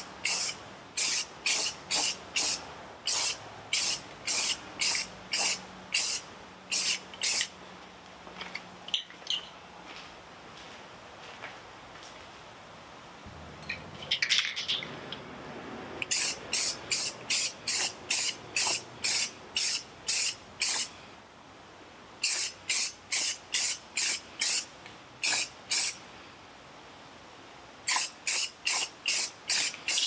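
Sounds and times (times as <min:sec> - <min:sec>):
aerosol can spraying: 0:00.0 - 0:07.5, 0:16.0 - 0:20.9, 0:22.2 - 0:26.0, 0:27.9 - 0:30.0.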